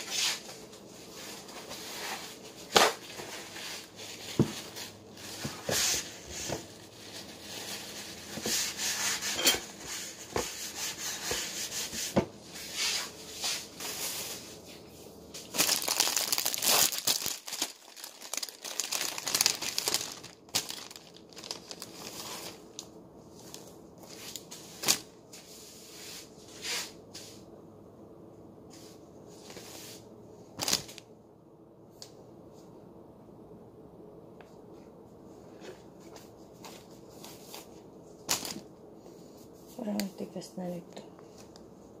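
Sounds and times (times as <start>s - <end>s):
wrapping crinkling and rustling: 0.0s - 11.8s, 12.5s - 25.5s, 30.5s - 31.1s, 35.6s - 38.7s.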